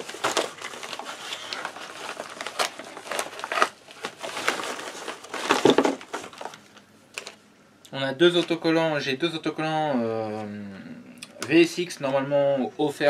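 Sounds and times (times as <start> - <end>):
paper envelope crinkling: 0.0 - 7.4.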